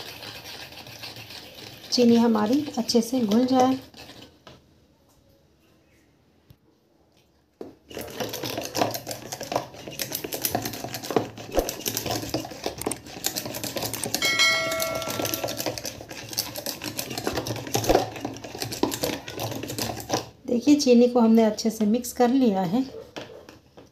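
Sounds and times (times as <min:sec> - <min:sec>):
whisk wires scraping plastic bowl: 0:00.0 - 0:04.6, 0:07.9 - 0:20.4
spinning whisk rattling and clicking: 0:07.9 - 0:20.3.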